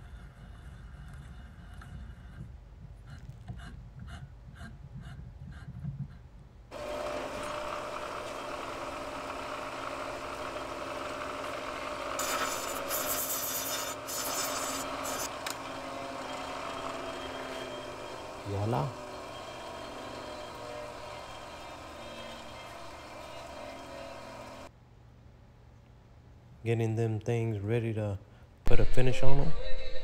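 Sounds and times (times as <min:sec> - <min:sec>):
bench grinder running: 0:06.7 - 0:24.7
steel rod grinding on wheel: 0:11.0 - 0:24.7.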